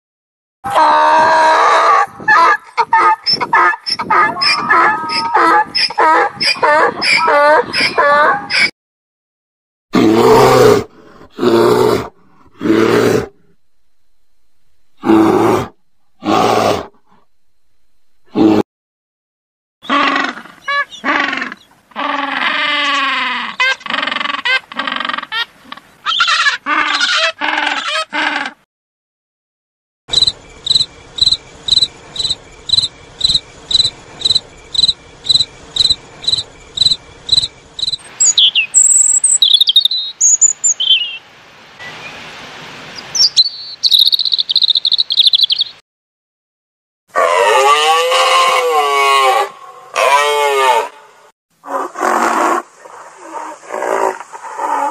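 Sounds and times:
wavering moo-like call: 0.7 - 8.7, 47.2 - 51.0
cricket chirping: 30.1 - 40.9, 43.5 - 45.7
high chirps and trills: 30.1 - 41.2, 43.2 - 45.8.

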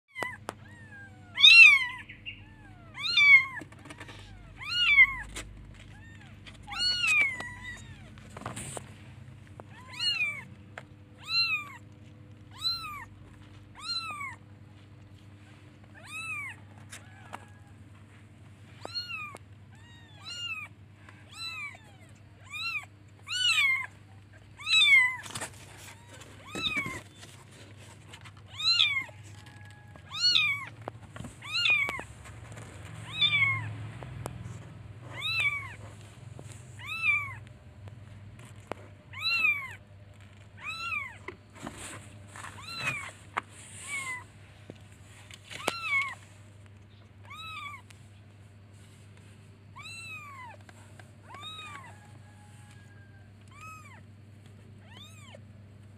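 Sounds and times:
kittens meowing: 0.1 - 8.4, 9.5 - 14.5, 15.4 - 17.7, 18.7 - 27.8, 28.4 - 36.0, 36.7 - 37.6, 39.1 - 41.4, 42.4 - 44.4, 45.5 - 48.1, 49.7 - 55.5.

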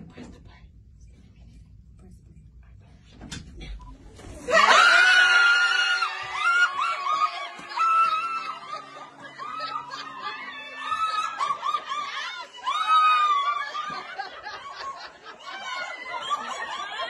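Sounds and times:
woman screaming with excitement: 4.4 - 14.5
woman laughing: 8.0 - 17.0.

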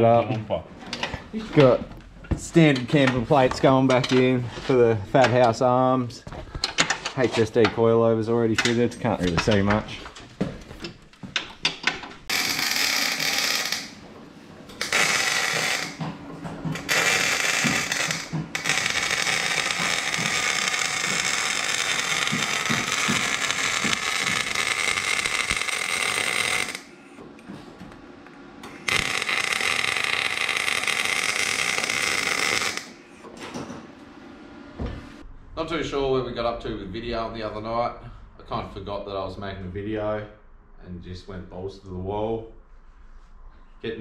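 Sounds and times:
arc welding crackling hiss: 14.8 - 16.0, 16.8 - 27.1, 28.7 - 33.0.

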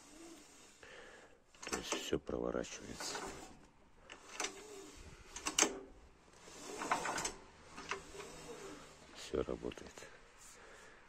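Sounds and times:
recoil starter rope rasping: 2.7 - 9.4.

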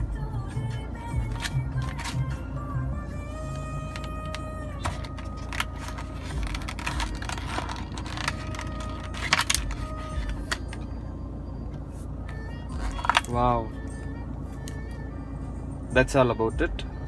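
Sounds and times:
plastic packaging crackling: 4.8 - 10.6.

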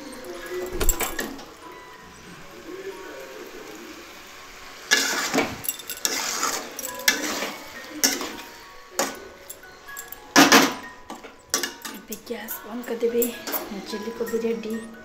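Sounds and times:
metal spoon scraping a metal pan: 4.9 - 12.3, 12.9 - 14.9.

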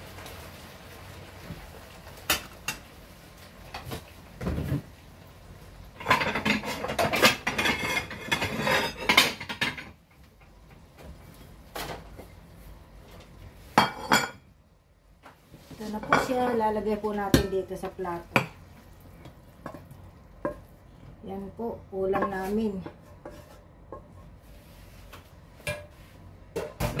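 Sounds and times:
kitchenware clinking and clattering: 5.9 - 10.2, 13.7 - 14.5, 15.8 - 17.7, 25.6 - 27.0.

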